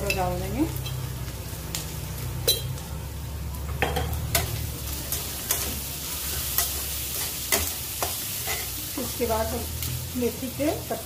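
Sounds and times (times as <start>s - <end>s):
food sizzling in oil: 0.0s - 11.0s
spatula scraping a pan: 5.2s - 8.8s.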